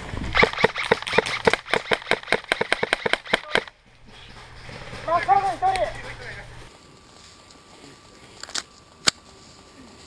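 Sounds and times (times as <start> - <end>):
airsoft pistol shots: 0.3 - 3.7.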